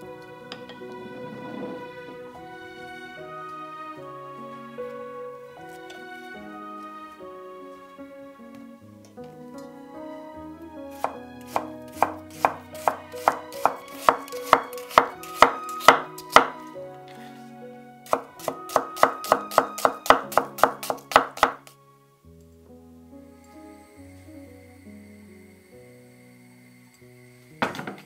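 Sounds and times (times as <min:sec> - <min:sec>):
soft background music: 0:00.0 - 0:28.0
knife chopping on wooden board: 0:11.5 - 0:16.6, 0:18.1 - 0:21.6.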